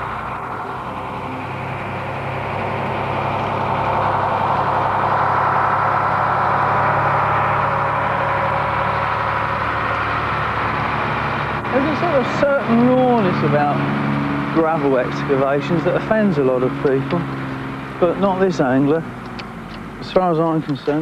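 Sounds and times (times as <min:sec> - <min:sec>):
heavy engine running: 0:00.0 - 0:21.0.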